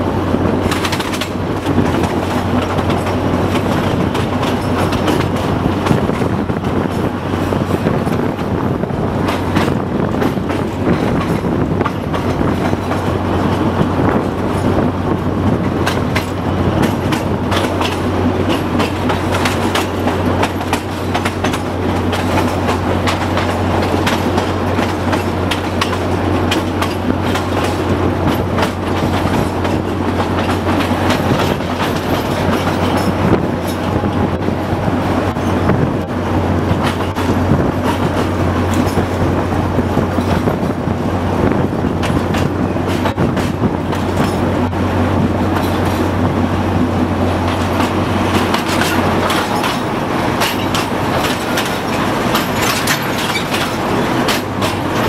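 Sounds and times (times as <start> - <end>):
wheels clicking over rail joints: 0.0 - 40.9, 41.5 - 55.0.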